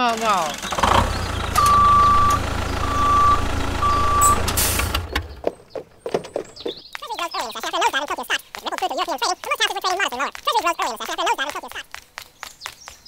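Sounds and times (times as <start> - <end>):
heavy vehicle engine rumbling: 0.0 - 6.8
reversing alarm beeping: 1.6 - 5.0.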